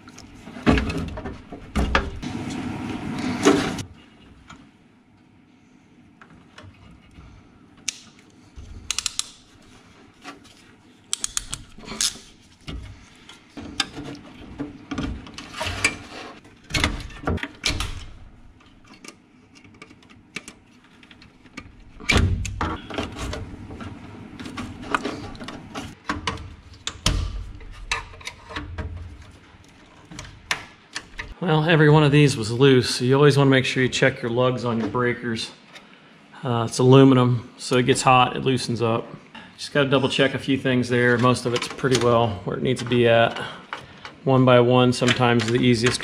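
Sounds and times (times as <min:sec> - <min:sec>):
tool and connector clicks: 0:08.9 - 0:09.4, 0:11.1 - 0:12.3.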